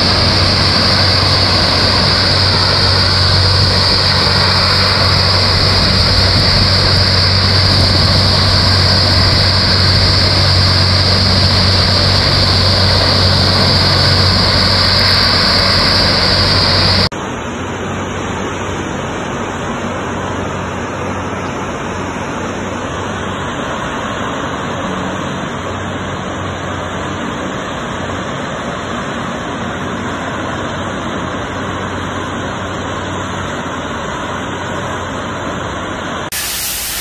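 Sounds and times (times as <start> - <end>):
large fire roaring: 0.0 - 17.1
machinery humming: 0.0 - 37.0.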